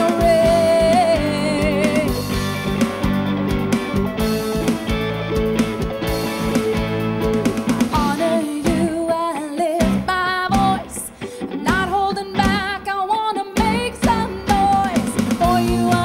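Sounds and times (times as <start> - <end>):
woman singing with vibrato: 0.0 - 2.2, 7.9 - 16.0
electric guitar bass and drums: 0.0 - 16.0.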